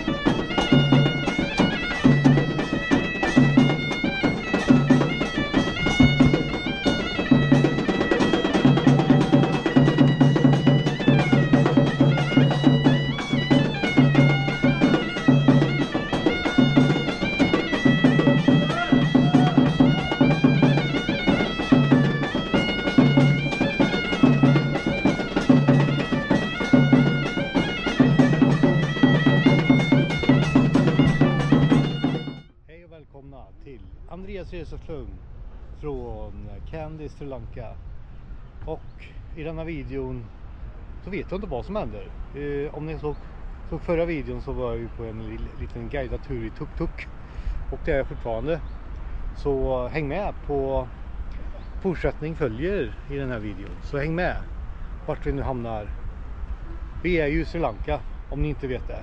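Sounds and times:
steady drum beat: 0:00.0 - 0:32.5
shrill reed pipe melody: 0:00.0 - 0:32.6.

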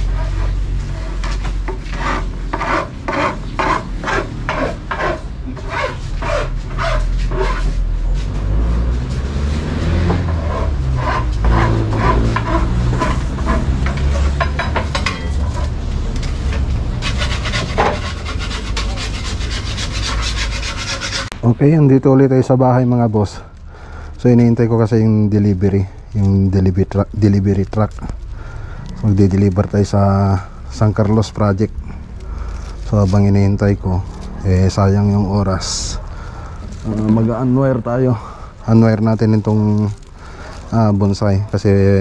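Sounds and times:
wood being sanded by hand: 0:00.0 - 0:08.4, 0:09.1 - 0:14.6, 0:17.0 - 0:21.3.

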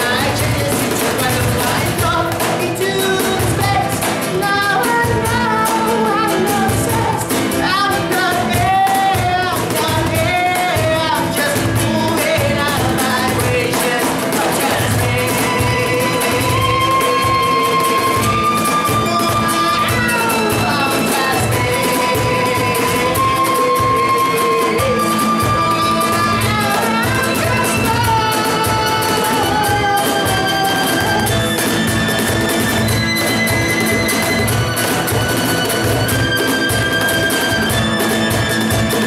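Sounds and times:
man singing: 0:00.0 - 0:36.7
cajon beat: 0:00.0 - 0:39.0
strummed acoustic guitar: 0:00.0 - 0:39.0.

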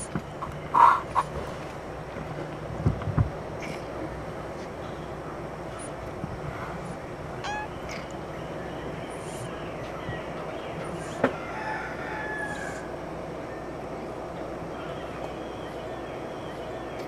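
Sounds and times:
high animal calls: 0:00.4 - 0:01.4, 0:07.4 - 0:09.5.

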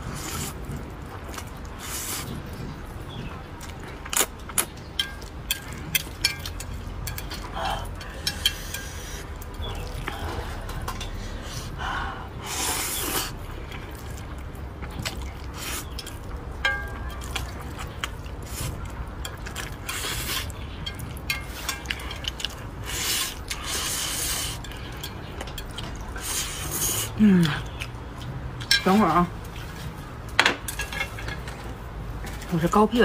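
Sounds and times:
noodles slurping: 0:05.7 - 0:16.3, 0:17.2 - 0:28.4.

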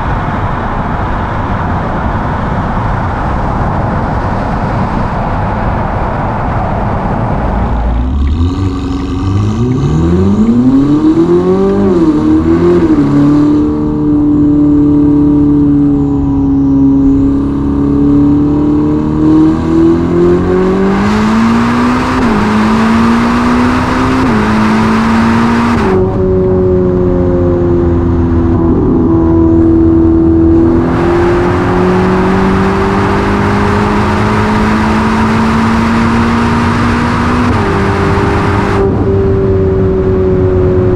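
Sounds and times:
wind and road noise: 0:00.0 - 0:40.9
sports car engine accelerating: 0:02.2 - 0:40.9.

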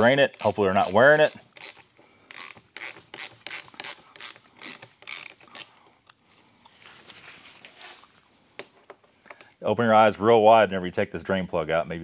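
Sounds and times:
ratchet clicking: 0:00.0 - 0:05.7.

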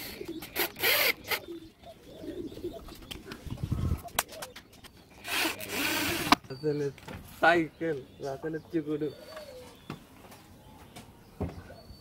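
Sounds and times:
bird cooing: 0:00.0 - 0:04.6, 0:09.0 - 0:09.8
power drill driving screws into wood: 0:00.4 - 0:01.4, 0:05.2 - 0:06.4.

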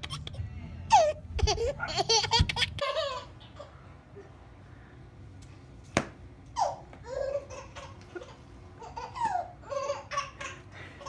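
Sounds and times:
baby giggling: 0:00.0 - 0:03.8, 0:06.6 - 0:10.6.

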